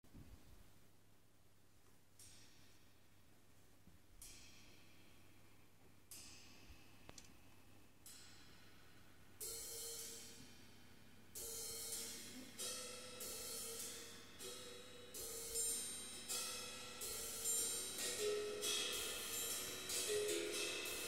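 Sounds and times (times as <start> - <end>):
cymbal shimmer: 8.1 - 10.8, 11.4 - 21.0.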